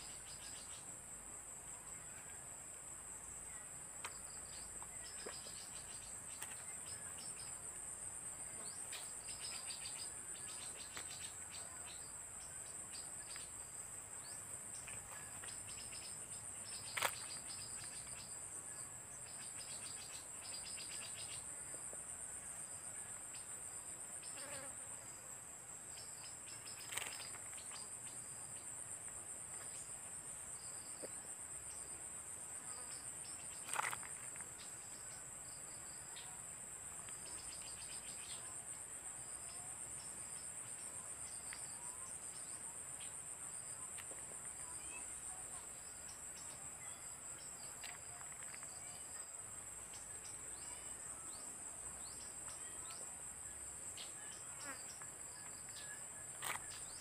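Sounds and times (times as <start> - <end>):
insects chorus: 0.0 - 57.0
stuttering insect trill: 24.1 - 24.7, 52.0 - 57.0.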